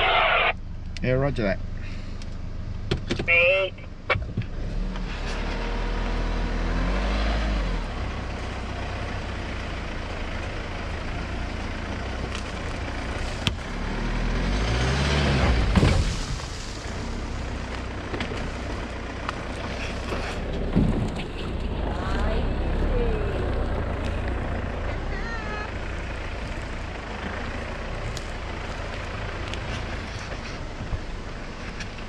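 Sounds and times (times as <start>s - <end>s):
car engine revving: 3.3s - 32.0s
tyres crunching over sticks: 11.6s - 14.9s, 15.6s - 21.8s, 26.1s - 32.0s
loud thump: 15.4s - 16.5s.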